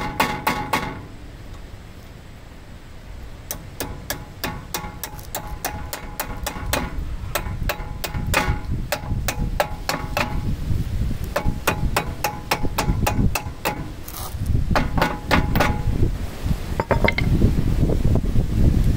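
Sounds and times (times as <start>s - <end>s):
hammer striking metal: 0.0s - 1.1s, 3.5s - 10.4s.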